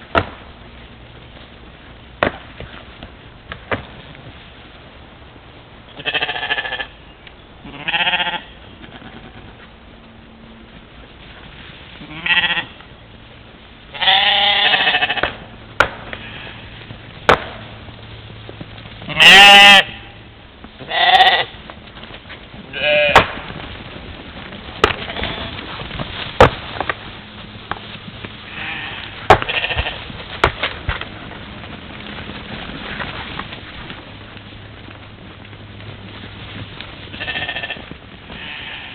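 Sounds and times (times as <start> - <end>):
sheep bleating: 6.0 - 7.0, 7.6 - 9.5, 12.0 - 12.8, 13.9 - 15.4, 16.2 - 16.9, 19.1 - 20.2, 20.8 - 21.6, 22.7 - 23.2, 24.9 - 25.6, 28.4 - 30.0, 37.1 - 38.9.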